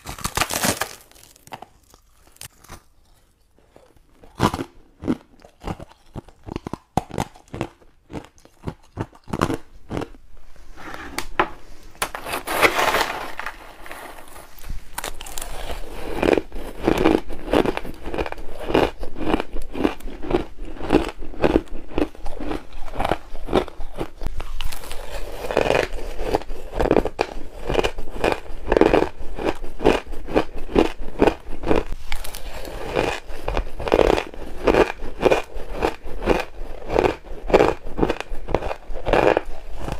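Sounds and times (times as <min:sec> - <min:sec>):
ice chunks being chewed: 0:00.0 - 0:10.2, 0:12.7 - 0:39.9.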